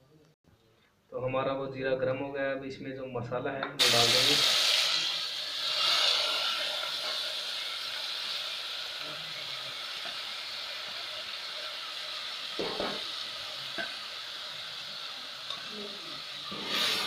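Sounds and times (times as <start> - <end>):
seeds sizzling in hot oil: 3.8 - 17.0.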